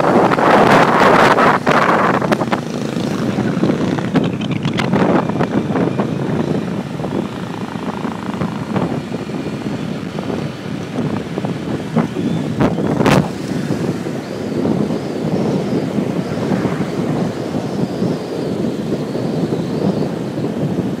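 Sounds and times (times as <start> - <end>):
wind rushing over microphone: 0.0 - 21.0
scooter engine running: 0.1 - 16.5.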